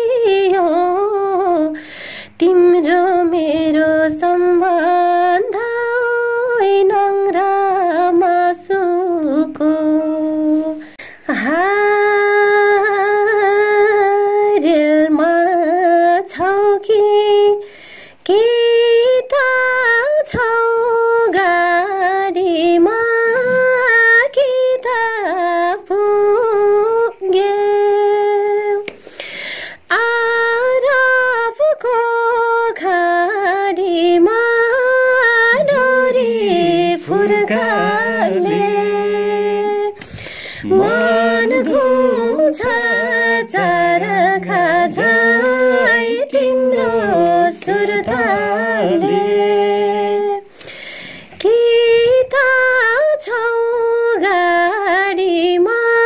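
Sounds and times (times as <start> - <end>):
woman singing unaccompanied: 0.0 - 17.6, 18.2 - 28.9, 29.8 - 50.6, 51.3 - 56.0
lower voice singing along: 8.8 - 10.8, 34.0 - 50.5.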